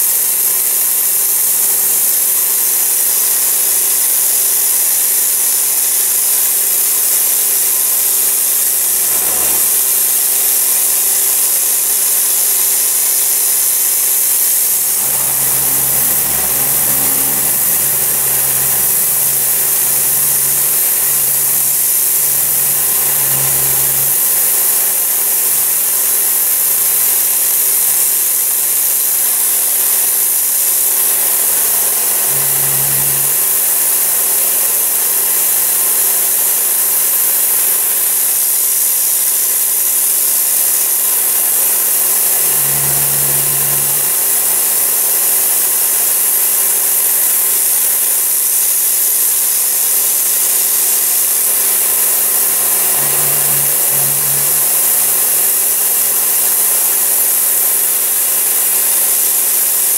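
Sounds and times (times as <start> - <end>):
pressure washer jet hissing: 0.0 - 59.9
pump humming: 0.2 - 27.3, 28.6 - 36.8, 39.9 - 58.2
deep rumble: 14.8 - 24.6, 51.5 - 55.4.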